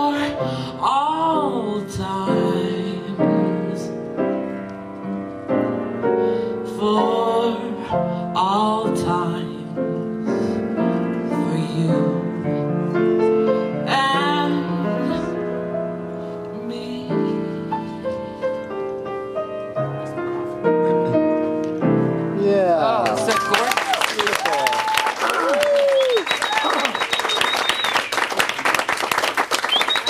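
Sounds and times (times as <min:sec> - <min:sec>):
woman singing: 0:00.0 - 0:04.0, 0:06.6 - 0:10.6, 0:11.2 - 0:12.7, 0:13.7 - 0:15.4, 0:16.5 - 0:18.0
piano accompaniment: 0:00.0 - 0:24.2.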